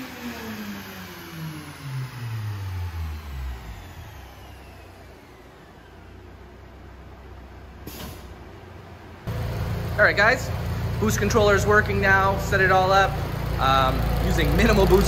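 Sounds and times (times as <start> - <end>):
high whine sliding down: 0.0 - 6.6
car engine revs falling to idle: 9.3 - 15.0.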